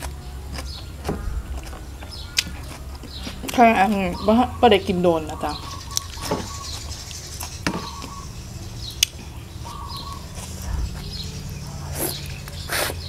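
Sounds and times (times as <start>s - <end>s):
fingers in wet food: 0.0s - 3.9s
bird chirps: 0.2s - 13.0s.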